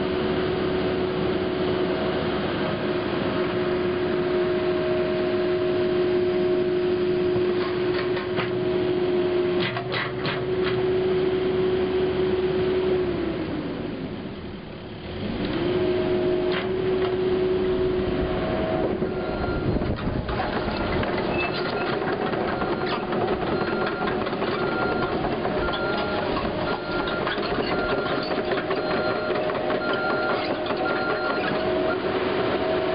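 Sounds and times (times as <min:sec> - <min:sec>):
diesel engine whine: 0:00.0 - 0:32.9
travel alarm beeping: 0:19.1 - 0:19.8, 0:21.6 - 0:31.8
steel tracks clattering: 0:19.6 - 0:32.6.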